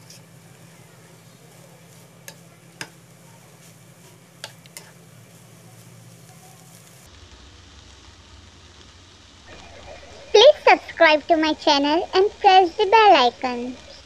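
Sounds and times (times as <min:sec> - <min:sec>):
food sizzling in a frying pan: 0:00.0 - 0:14.0
spatula clicking against pan: 0:02.2 - 0:03.0.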